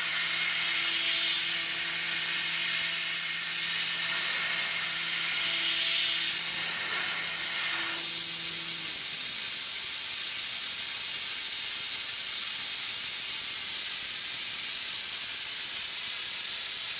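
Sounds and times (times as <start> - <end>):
low machine hum: 0.0 - 9.6
coolant spraying hiss: 3.2 - 16.9.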